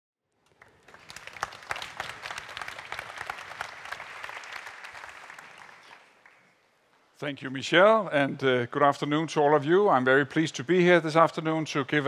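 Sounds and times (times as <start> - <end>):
audience applauding: 0.4 - 6.6.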